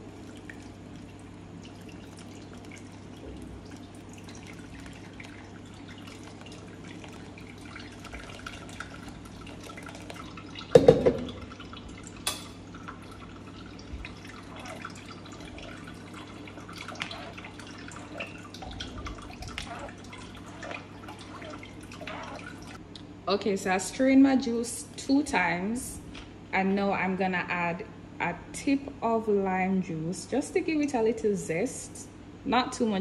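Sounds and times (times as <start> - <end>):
thick juice pouring into strainer: 0.0 - 22.8.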